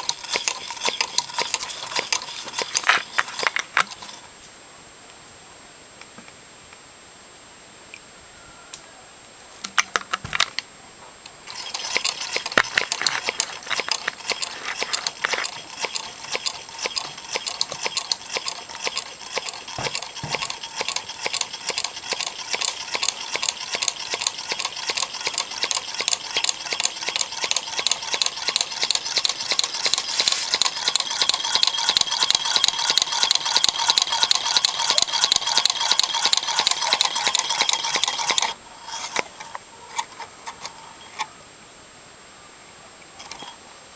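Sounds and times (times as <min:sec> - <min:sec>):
metal engine linkage clicking: 0:00.0 - 0:04.2, 0:11.5 - 0:41.3, 0:43.2 - 0:43.6.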